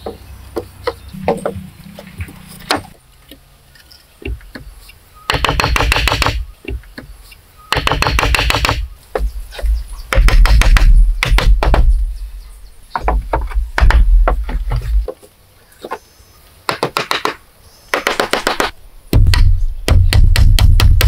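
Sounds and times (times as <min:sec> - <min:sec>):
hammer striking wooden logs: 0:00.0 - 0:01.7, 0:05.3 - 0:07.1, 0:07.7 - 0:12.0, 0:13.0 - 0:15.2, 0:16.7 - 0:21.0.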